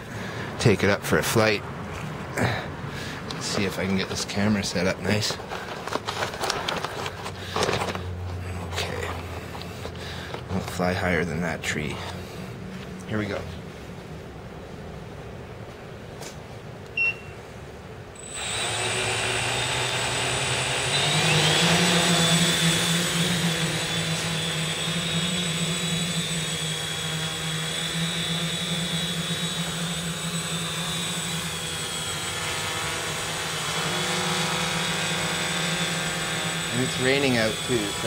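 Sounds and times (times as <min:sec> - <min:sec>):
quadcopter motors whining: 0:03.2 - 0:08.2, 0:18.2 - 0:38.0
short beep: 0:17.0 - 0:17.4.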